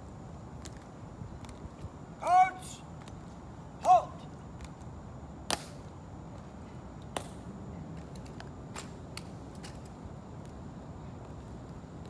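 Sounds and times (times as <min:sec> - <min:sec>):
marching shoes clicking on stone: 0:00.5 - 0:02.0.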